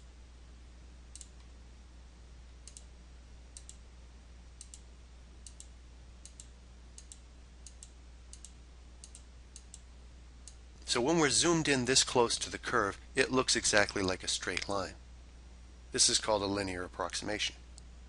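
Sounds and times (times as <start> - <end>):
faint low hum: 0.0 - 18.0
computer mouse clicking: 1.1 - 1.5, 2.6 - 2.9, 3.6 - 3.8, 4.6 - 4.8, 5.4 - 9.8.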